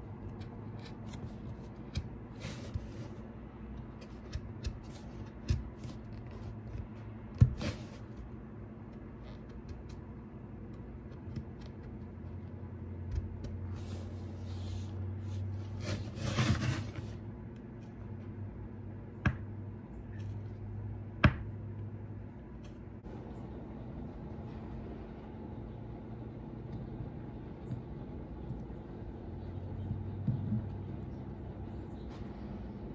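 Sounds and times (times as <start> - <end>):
steady low hum: 0.0 - 32.9
knife scraping wood: 13.7 - 17.2.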